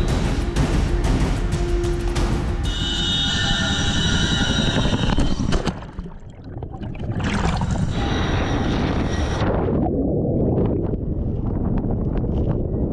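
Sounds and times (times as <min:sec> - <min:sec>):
high whine: 0:00.0 - 0:05.9, 0:07.6 - 0:09.9
helicopter rotor noise: 0:02.6 - 0:05.6
rushing wind: 0:07.1 - 0:12.9.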